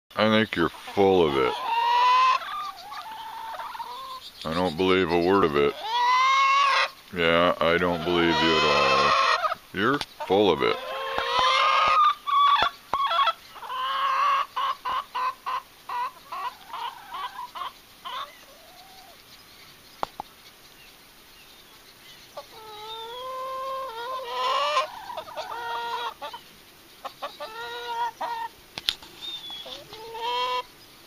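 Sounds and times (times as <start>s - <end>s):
hens clucking: 0.6s - 19.2s, 22.4s - 30.7s
hen squawking: 0.8s - 9.6s, 10.2s - 19.2s, 22.4s - 26.4s, 27.1s - 28.6s, 29.3s - 30.7s.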